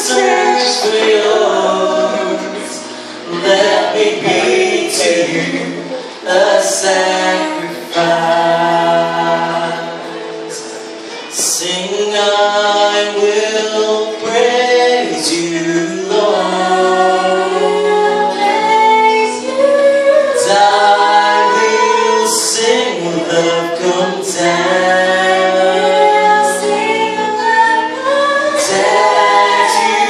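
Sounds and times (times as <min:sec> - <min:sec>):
acoustic guitar: 0:00.0 - 0:30.0
man and woman singing: 0:00.0 - 0:30.0.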